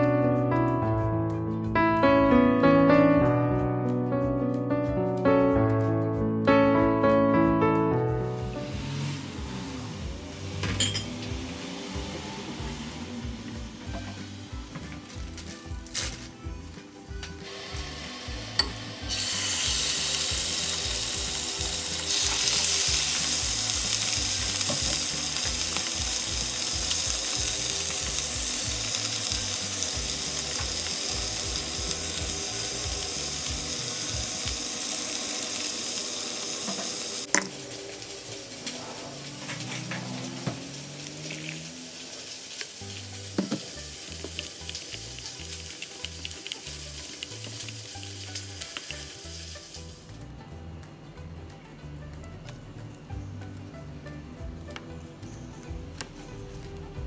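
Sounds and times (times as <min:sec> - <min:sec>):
soft background music: 0:00.0 - 0:57.0
metal spoon clinking in a jug: 0:10.8 - 0:11.1
meat sizzling in a frying pan: 0:17.4 - 0:50.1.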